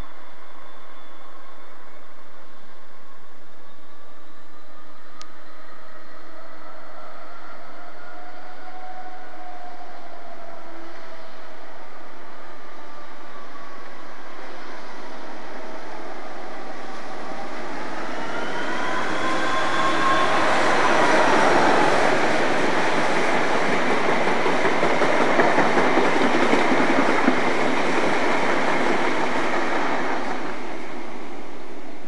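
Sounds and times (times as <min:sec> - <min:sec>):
diesel locomotive passing: 0:05.4 - 0:32.0
train coaches rushing by: 0:14.6 - 0:31.6.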